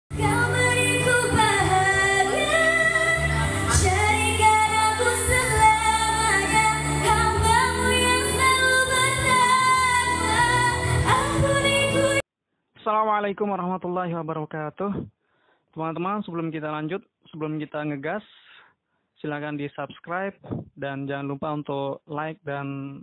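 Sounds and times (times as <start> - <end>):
backing music: 0.1 - 12.2
girl singing into microphone: 0.1 - 12.2.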